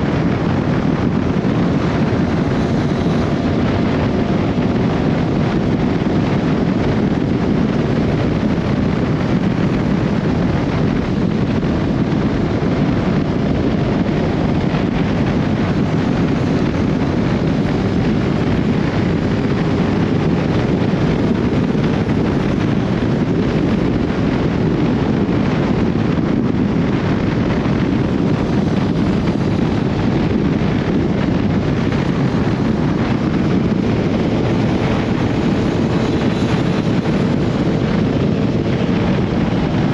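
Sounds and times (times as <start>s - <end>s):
motorcycle engine running: 0.0s - 39.9s
wind rushing over microphone: 0.0s - 39.9s.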